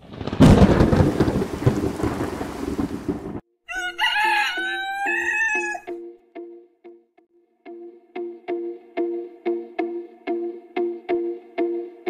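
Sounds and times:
rain: 0.0 - 3.4
thunder: 0.0 - 3.4
rooster crowing: 3.7 - 5.9.

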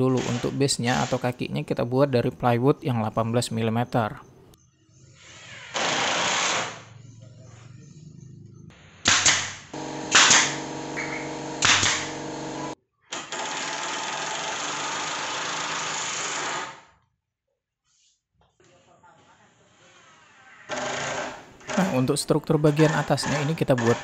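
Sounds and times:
sharp shots of nail gun: 5.7 - 6.8, 9.0 - 16.8
power tool motor hum: 9.1 - 16.8, 20.7 - 21.9.

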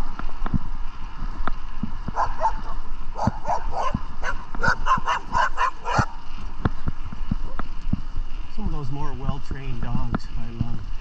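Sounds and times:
dog barking: 2.2 - 6.2.

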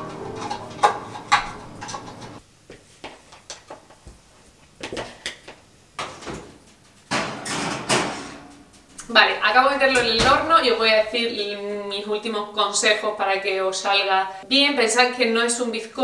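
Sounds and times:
oven rack sliding: 0.0 - 2.4.

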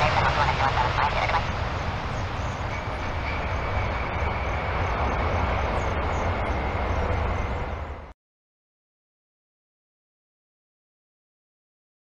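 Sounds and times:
faint high whine: 0.0 - 8.1
jet engines rumbling: 0.0 - 8.2.

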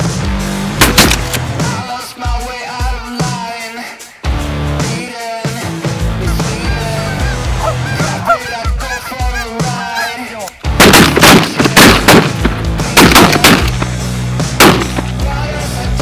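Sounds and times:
rock music: 0.0 - 16.0
shotgun blasts: 0.8 - 1.6, 10.8 - 14.0, 14.6 - 15.1
geese honking: 6.1 - 11.2.

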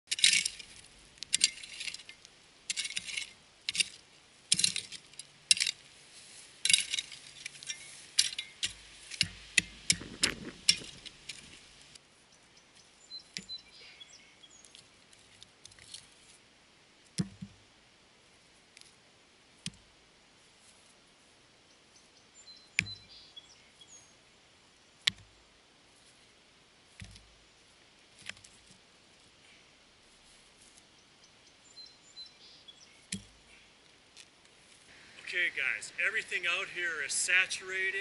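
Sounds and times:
small stones clinking: 0.1 - 5.8, 6.6 - 9.3
stones clicking moved by hand: 0.1 - 5.9, 6.6 - 12.0
shovel scraping into gravelly soil: 0.1 - 9.5.

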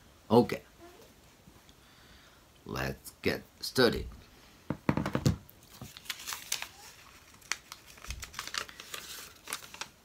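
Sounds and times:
paper slip crinkling: 5.6 - 10.0.

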